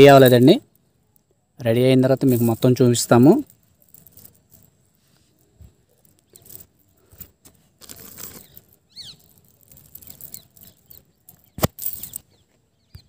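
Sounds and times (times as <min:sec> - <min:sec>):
rustling and clicking handling noise: 0:02.0 - 0:13.0
high falling chirp: 0:08.2 - 0:13.0.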